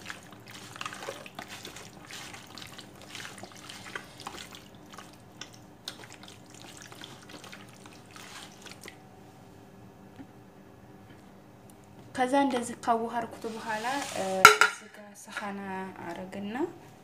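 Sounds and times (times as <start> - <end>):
hands squishing raw meat: 0.0 - 9.0.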